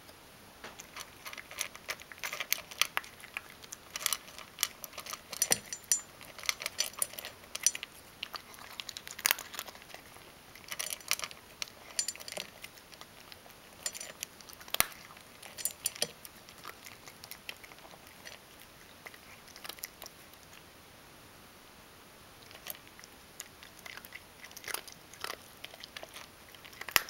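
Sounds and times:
cat crunching dry kibble: 0.7 - 20.7, 22.4 - 27.0
kibble clicks in metal bowl: 0.8 - 9.7, 10.6 - 17.4, 25.3 - 27.0.

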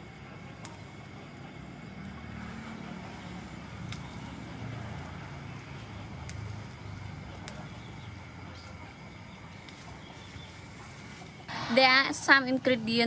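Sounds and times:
leaves snapping off: 6.2 - 6.5.

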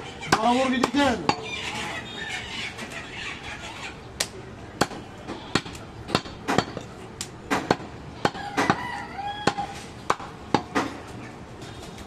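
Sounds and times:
rooster crowing: 8.3 - 9.8.

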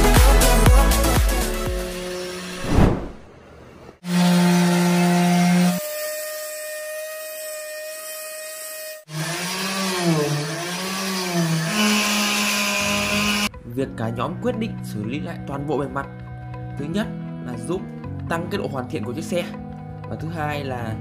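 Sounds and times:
brief whoosh: 2.6 - 3.4.

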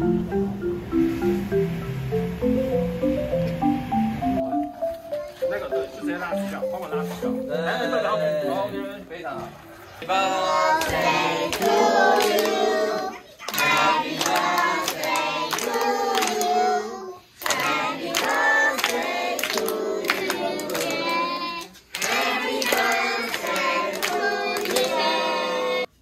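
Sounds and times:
children singing: 9.9 - 26.0.

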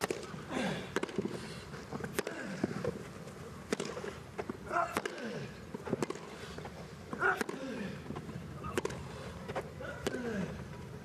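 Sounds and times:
racket striking tennis ball: 0.0 - 0.3, 3.7 - 4.1.

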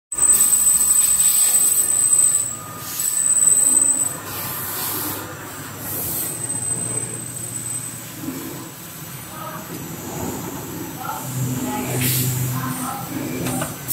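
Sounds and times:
high squealing whine: 0.1 - 8.6.

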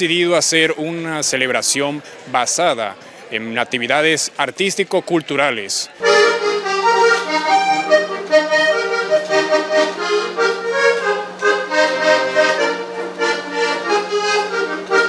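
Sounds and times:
button accordion melody: 6.0 - 15.0.

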